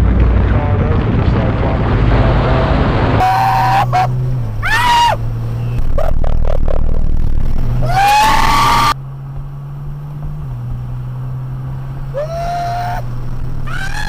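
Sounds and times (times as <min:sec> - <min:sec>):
car engine running at speed: 0:00.0 - 0:14.0
tyre and wind noise: 0:03.0 - 0:14.0
person shouting: 0:03.2 - 0:05.2, 0:12.1 - 0:13.1
bursts of laughter: 0:05.9 - 0:07.1.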